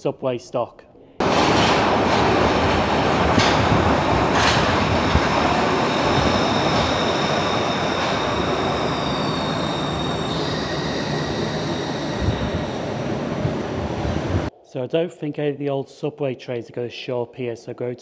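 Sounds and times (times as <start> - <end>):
wheels squealing: 1.2 - 14.0
subway train rumble: 1.2 - 14.5.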